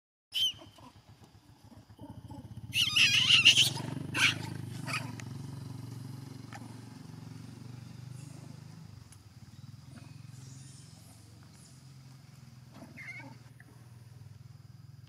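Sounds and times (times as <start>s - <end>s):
young monkey screaming: 0.4s - 1.0s, 2.0s - 5.2s, 12.8s - 13.5s.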